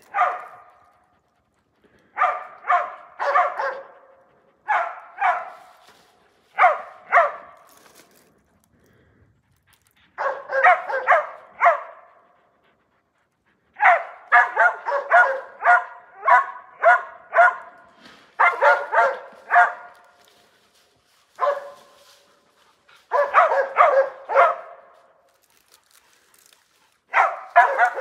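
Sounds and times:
dogs barking: 0.0 - 1.2, 2.0 - 5.9, 6.5 - 7.7, 10.1 - 12.7, 13.7 - 20.3, 21.4 - 25.2, 27.0 - 28.0.

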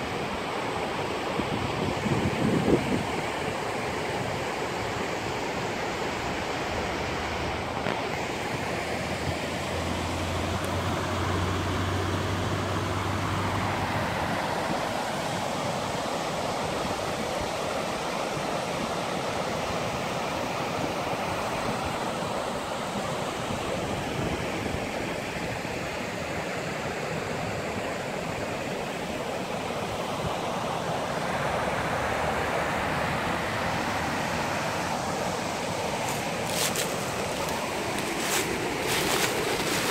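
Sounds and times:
water rushing over rocks: 28.0 - 39.9.

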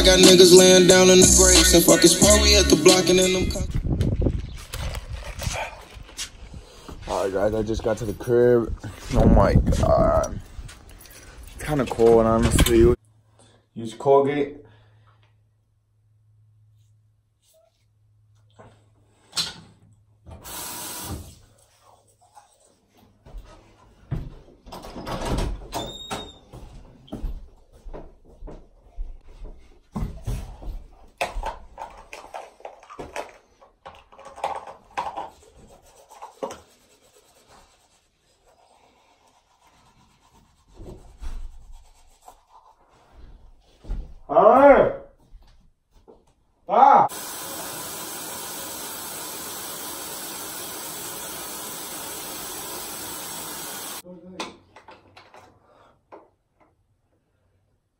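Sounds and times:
door hinge squeak: 25.0 - 26.5
faucet running into sink: 47.1 - 54.0.

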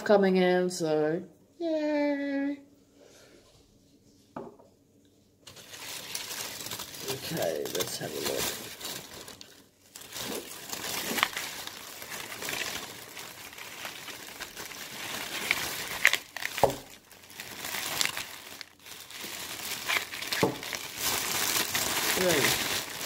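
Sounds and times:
paper wrap crinkling: 5.4 - 23.0.

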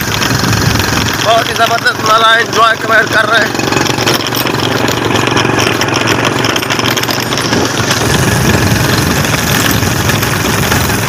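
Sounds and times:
wind buffeting microphone: 0.0 - 1.4, 5.0 - 11.0
vehicle engine running: 0.0 - 11.0.

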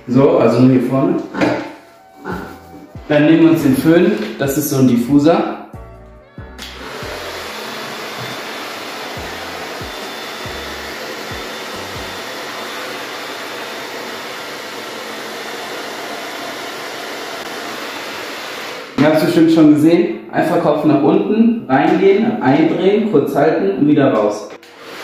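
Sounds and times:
hair dryer blowing: 6.6 - 19.1, 24.6 - 25.0.

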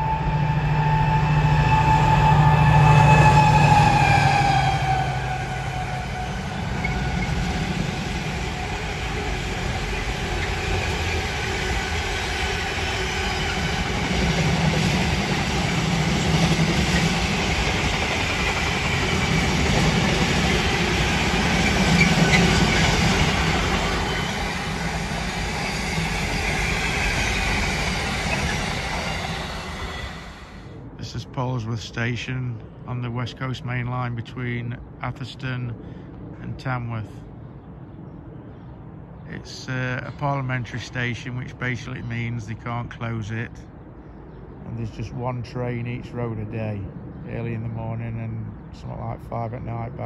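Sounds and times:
train wagons rumbling and clattering: 0.0 - 30.5
diesel locomotive engine: 0.0 - 50.0.

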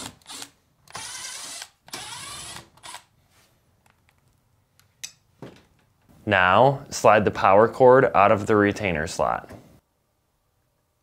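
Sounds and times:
cordless driver whirring: 0.0 - 3.1.

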